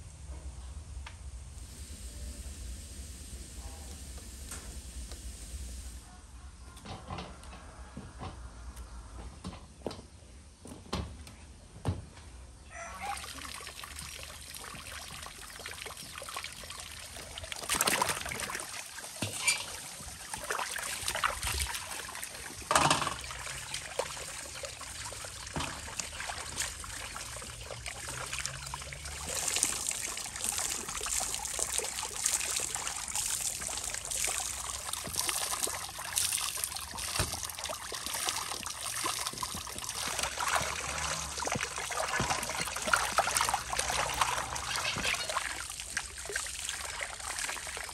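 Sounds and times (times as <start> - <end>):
water trickling and splashing: 12.8 - 47.9.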